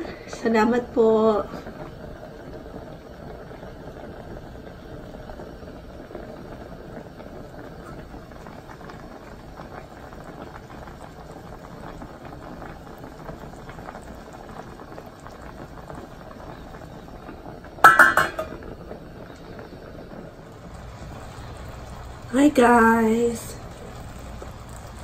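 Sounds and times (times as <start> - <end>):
stew bubbling in a pot: 0.0 - 25.0
metal lid clanking on pot: 17.8 - 18.7.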